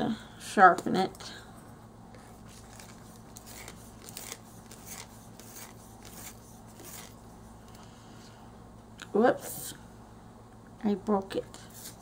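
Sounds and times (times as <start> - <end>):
pencil sharpener scraping: 2.5 - 7.2.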